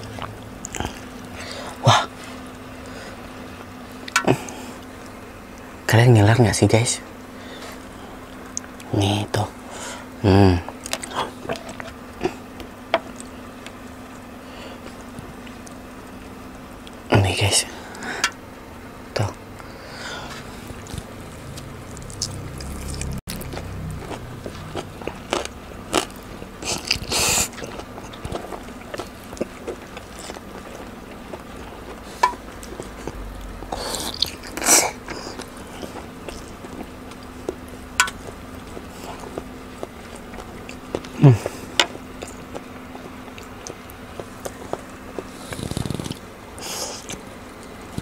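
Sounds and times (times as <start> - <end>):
wet chewing and lip smacking: 20.7 - 48.0
low sound sliding down in pitch: 33.1 - 33.8.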